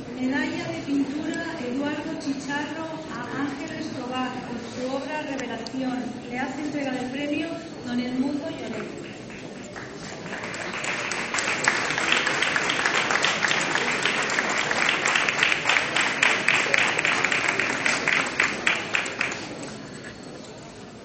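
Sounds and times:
audience applauding: 8.9s - 20.0s.

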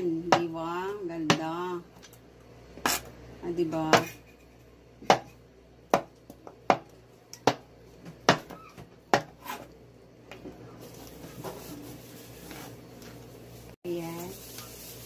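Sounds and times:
knife chopping on cutting board: 5.0s - 9.7s.

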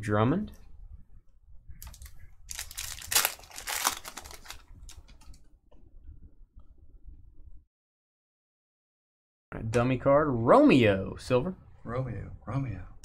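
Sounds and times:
wrapper tearing and crinkling: 1.8s - 5.3s.

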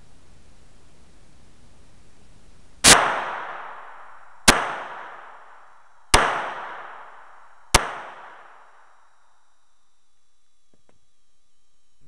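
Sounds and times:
pistol shots echoing in a room: 2.8s - 9.3s.

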